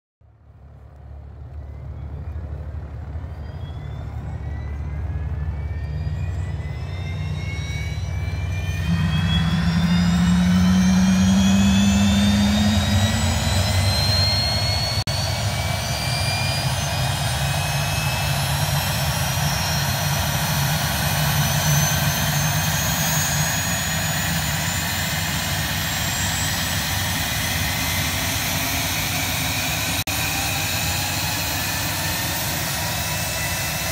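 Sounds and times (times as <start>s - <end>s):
jet engine whine: 0.2s - 33.9s
low rumble: 0.4s - 15.5s.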